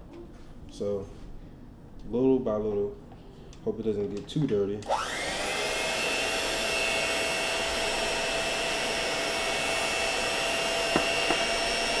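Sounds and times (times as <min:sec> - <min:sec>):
electric hand mixer whine: 0:04.9 - 0:12.0.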